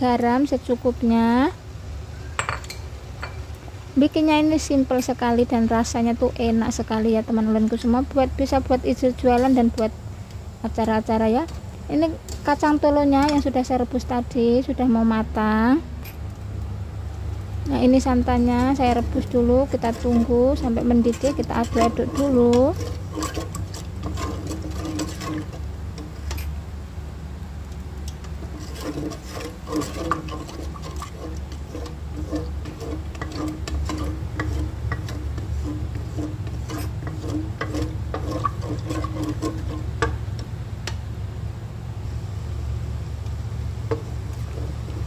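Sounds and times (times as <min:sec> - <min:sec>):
spoon scraping and tapping pot: 0:18.6 - 0:26.5, 0:28.1 - 0:41.0.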